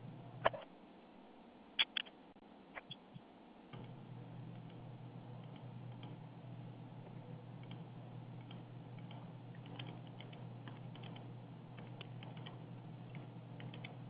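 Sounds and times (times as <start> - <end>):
steady low hum: 0.0 - 14.0
faint keyboard typing: 3.7 - 6.2, 7.0 - 14.0.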